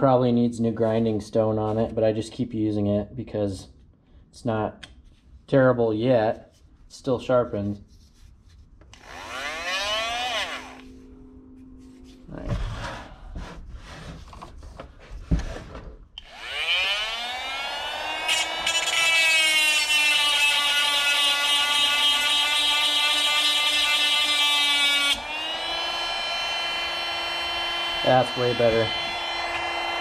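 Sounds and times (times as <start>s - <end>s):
chain sharpener motor whining: 9.0s - 10.9s, 16.2s - 21.2s, 25.0s - 30.0s.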